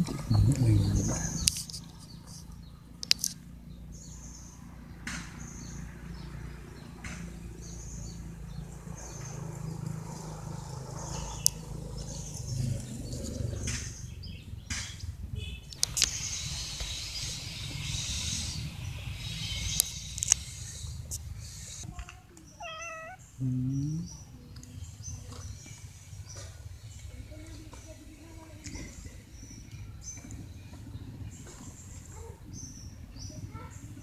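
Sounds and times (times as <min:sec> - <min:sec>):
birds chirping: 0:00.0 - 0:34.0
sharp clicks: 0:03.0 - 0:03.4, 0:15.7 - 0:16.2, 0:19.7 - 0:20.5.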